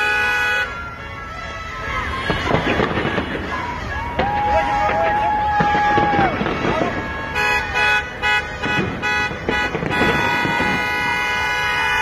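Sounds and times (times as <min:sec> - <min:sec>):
car horns honking: 0:00.0 - 0:12.0
firework bang: 0:02.1 - 0:07.8, 0:08.4 - 0:12.0.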